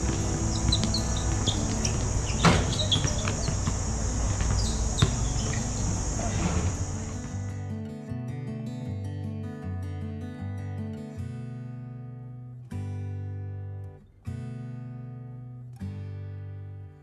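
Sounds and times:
players calling out: 0.0s - 7.5s
sneaker squeaks: 0.0s - 7.5s
basketball thuds: 0.0s - 7.6s
high drone of insects: 0.0s - 7.6s.

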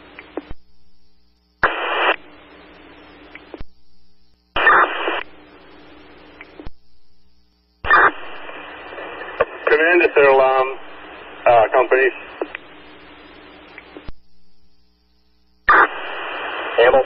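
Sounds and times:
open radio channel hiss: 0.0s - 17.0s
radio static bursts: 1.6s - 3.7s, 4.5s - 6.8s, 7.8s - 14.2s, 15.6s - 17.0s.

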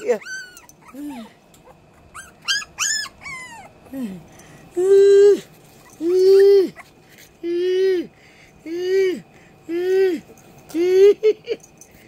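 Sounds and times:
puppies whining and yipping: 0.0s - 3.9s, 5.4s - 7.3s.

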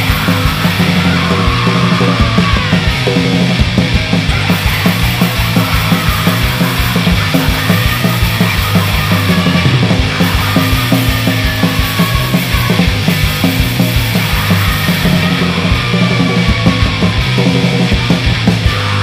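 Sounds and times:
hardcore punk song: 0.0s - 19.0s.

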